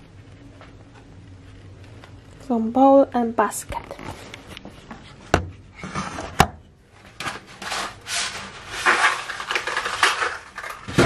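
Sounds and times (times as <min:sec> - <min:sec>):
cardboard scraping and rustling: 0:07.2 - 0:11.0.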